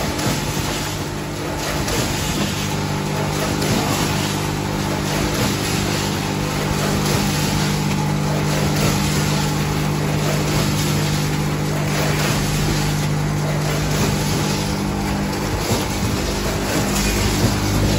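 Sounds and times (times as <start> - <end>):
packaging machines humming: 0.0 - 17.9.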